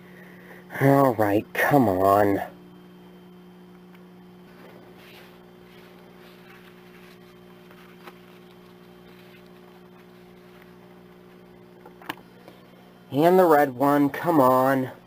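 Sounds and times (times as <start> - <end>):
low electrical hum: 0.0 - 15.0
paper rustling: 4.6 - 11.4.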